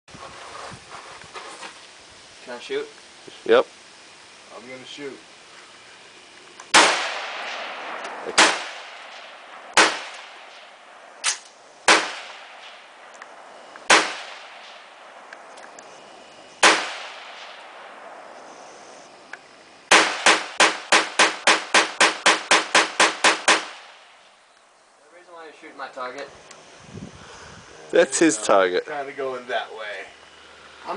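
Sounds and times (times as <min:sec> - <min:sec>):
rifle shots echoing: 0:06.7 - 0:15.4, 0:16.6 - 0:18.2, 0:19.9 - 0:24.3.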